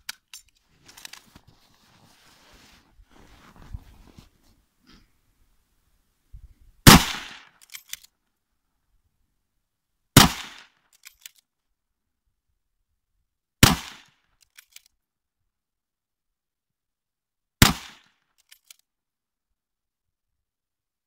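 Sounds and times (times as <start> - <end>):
rifle shots with echo: 6.9 - 7.5, 10.2 - 10.6, 13.6 - 14.1
rifle bolt clicks: 7.5 - 8.1, 10.9 - 11.4.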